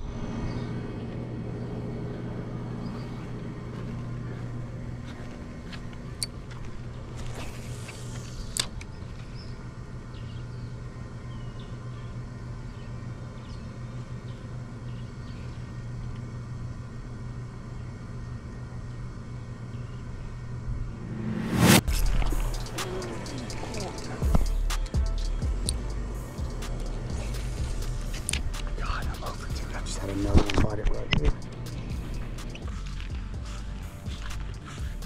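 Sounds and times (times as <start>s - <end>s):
low engine hum: 0.0s - 35.0s
brief rush of noise: 20.9s - 23.1s.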